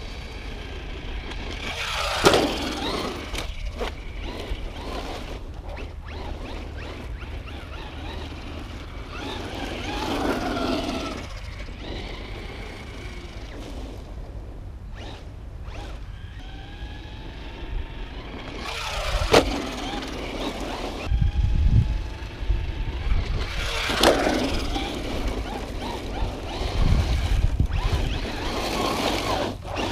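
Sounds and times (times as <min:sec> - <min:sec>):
electric motor whine: 0:00.0 - 0:14.2, 0:14.9 - 0:29.9
wind rumble on microphone: 0:00.0 - 0:29.9.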